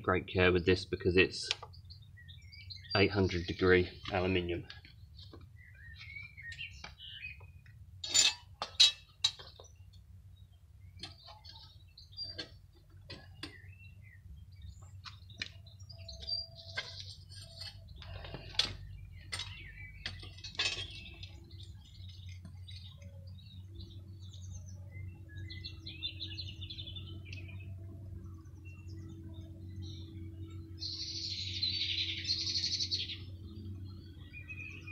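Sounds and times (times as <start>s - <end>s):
low furnace rumble: 0.0s - 34.8s
birds chirping: 0.0s - 34.9s
tongs clinking on crucible: 8.0s - 9.5s.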